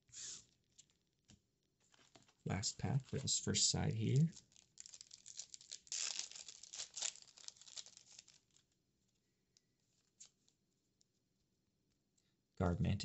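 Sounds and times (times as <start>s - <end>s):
foil wrapper crinkling and tearing: 4.0s - 8.8s.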